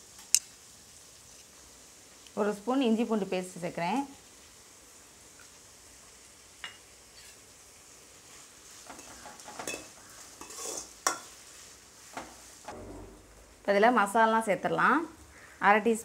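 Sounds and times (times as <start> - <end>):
food sizzling in oil: 0.0 - 16.0
spoon scraping and clinking pan: 8.9 - 11.3.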